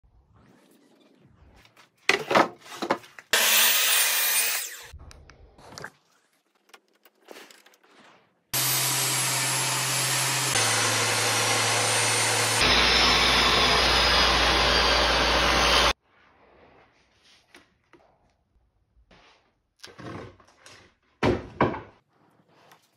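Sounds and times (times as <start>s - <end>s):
table saw cutting wood: 3.3s - 4.9s, 8.6s - 16.0s.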